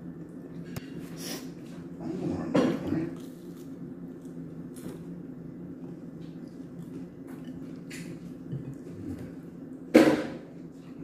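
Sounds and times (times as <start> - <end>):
low background hum: 0.0 - 11.0
chewing and mouth clicks: 5.8 - 9.8.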